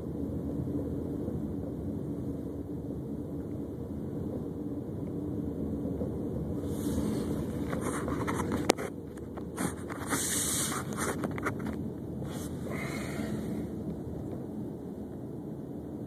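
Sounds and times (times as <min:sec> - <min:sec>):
car engine and tyre rumble: 0:00.0 - 0:16.0
hiss: 0:09.5 - 0:11.2, 0:12.2 - 0:13.8.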